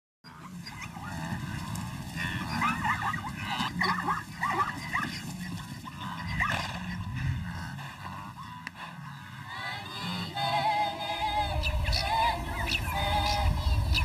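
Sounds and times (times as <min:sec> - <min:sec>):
high whining animal calls: 0:00.2 - 0:14.0
low steady hum: 0:00.3 - 0:14.0.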